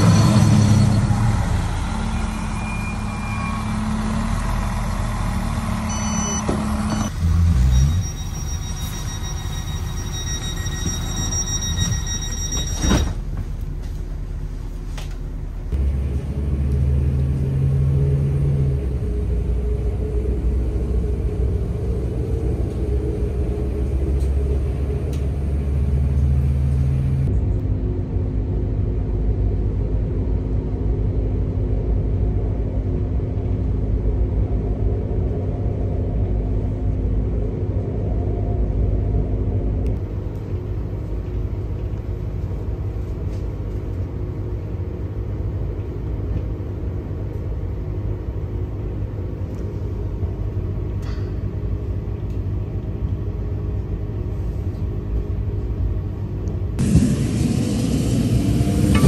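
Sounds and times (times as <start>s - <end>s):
train rumble from inside carriage: 0.0s - 59.0s
steady hum: 27.2s - 59.0s.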